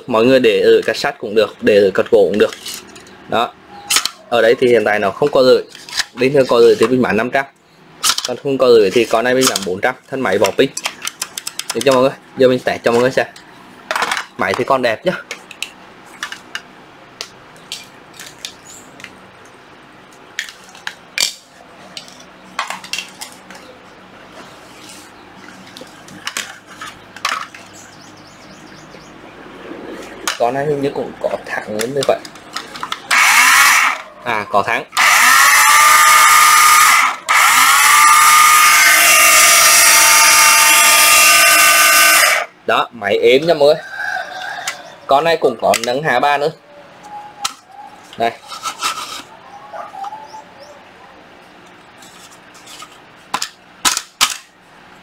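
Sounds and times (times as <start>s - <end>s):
cordless circular saw whining: 33.1s - 42.5s.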